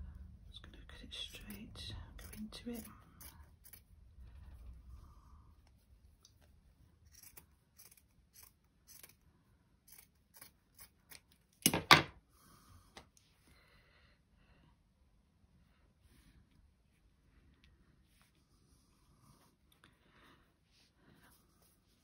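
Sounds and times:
scissors snipping fabric: 2.2s - 3.9s, 7.0s - 9.2s, 9.8s - 11.8s.

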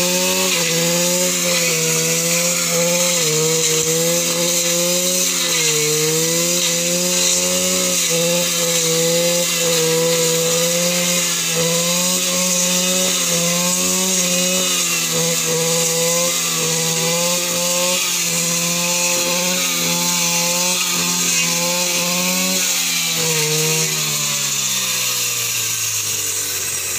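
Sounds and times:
brush cutter engine cutting: 0.0s - 26.9s.

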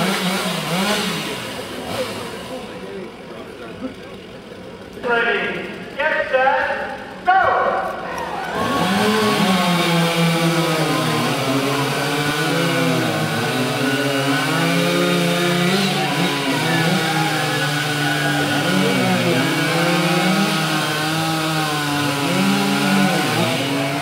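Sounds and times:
chainsaws cutting logs: 0.0s - 24.0s.

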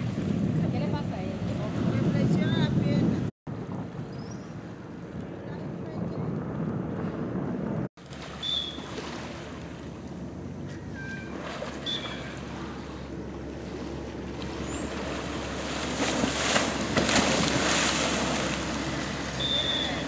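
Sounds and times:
wind on microphone: 0.0s - 7.9s
rushing water and spray: 8.0s - 10.1s, 11.2s - 20.0s.

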